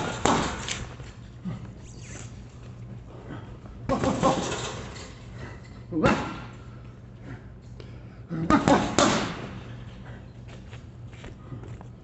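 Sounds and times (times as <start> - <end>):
punches hitting heavy bag: 0.0 - 0.7, 3.9 - 4.5, 8.4 - 9.6.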